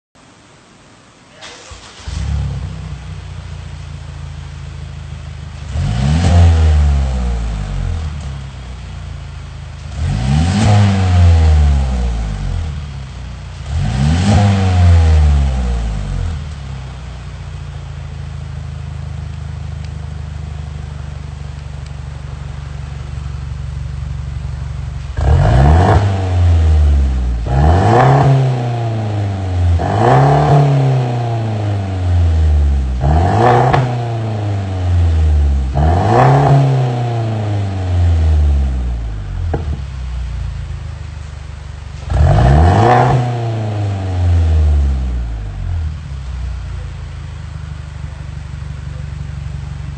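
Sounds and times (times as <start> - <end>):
car engine idling: 0.4 - 49.9
car engine revving: 1.4 - 49.9.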